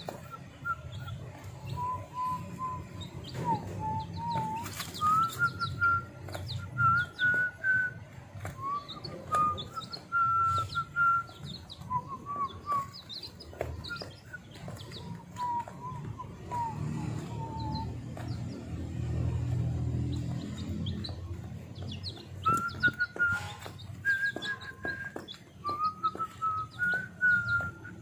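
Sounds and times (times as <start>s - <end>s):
chicks peeping: 0.0s - 28.0s
wavering whistle-like tone: 22.5s - 28.0s.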